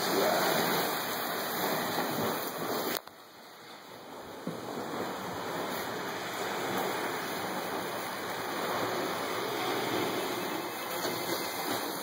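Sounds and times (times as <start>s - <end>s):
ocean surf breaking on shore: 0.0s - 12.0s.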